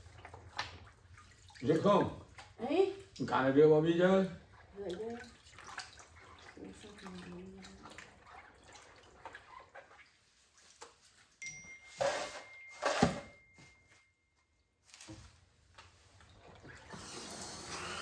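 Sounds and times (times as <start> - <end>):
water splashing and dripping: 0.0 - 11.4, 15.7 - 17.9.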